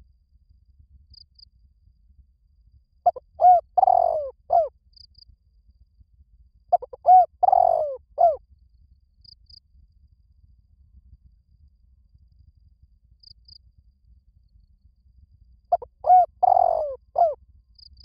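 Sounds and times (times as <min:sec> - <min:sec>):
dove cooing: 0:03.1 - 0:04.7, 0:06.7 - 0:08.4, 0:15.7 - 0:17.4.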